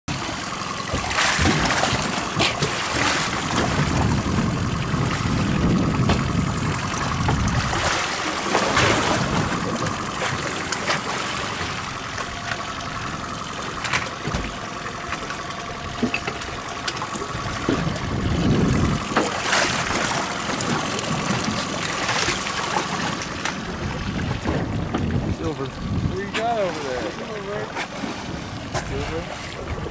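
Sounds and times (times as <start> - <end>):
sea water splashing against boat: 0.1 - 29.9.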